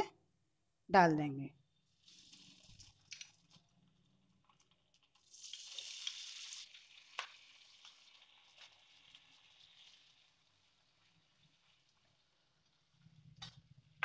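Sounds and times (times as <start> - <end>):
food sizzling in hot oil: 1.8 - 3.6, 4.7 - 13.8.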